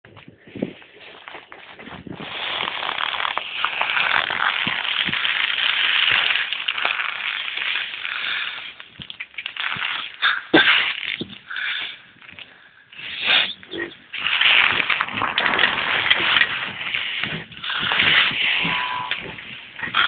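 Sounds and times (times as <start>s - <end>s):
wind on microphone: 0.1s - 2.9s, 13.0s - 20.0s.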